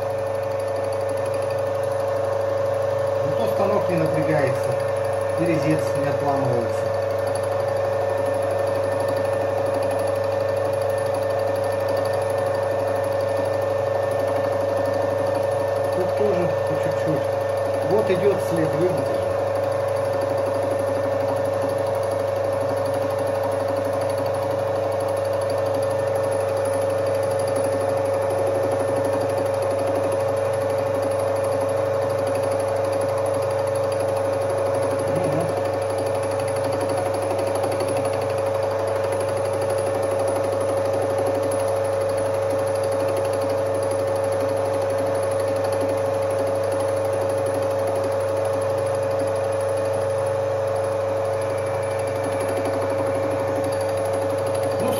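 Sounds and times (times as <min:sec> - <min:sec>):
metal lathe humming and whining: 0:00.0 - 0:54.9.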